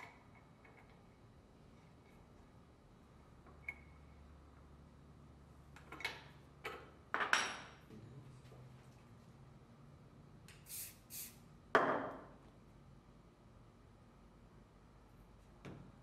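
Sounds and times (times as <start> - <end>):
aerosol can spraying: 10.6 - 11.4.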